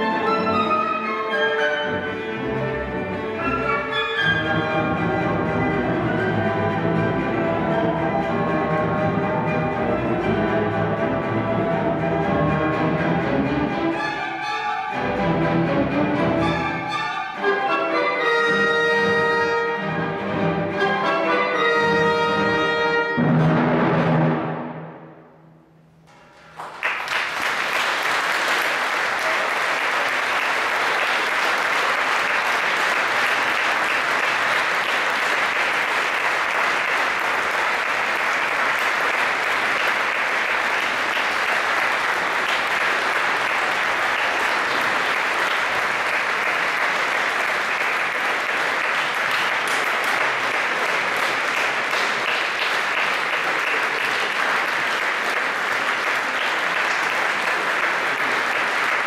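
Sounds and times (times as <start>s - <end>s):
audience applauding: 26.1s - 59.0s.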